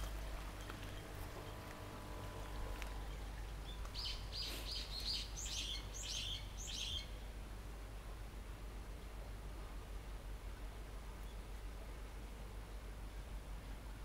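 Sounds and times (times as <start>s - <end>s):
low background noise: 0.0s - 14.0s
small bird chirping: 2.9s - 7.2s.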